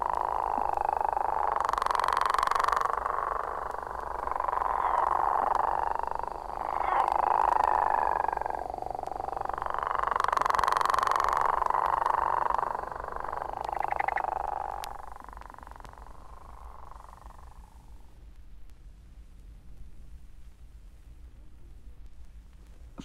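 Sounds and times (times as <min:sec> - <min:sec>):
chorus of frogs calling: 0:00.0 - 0:18.0.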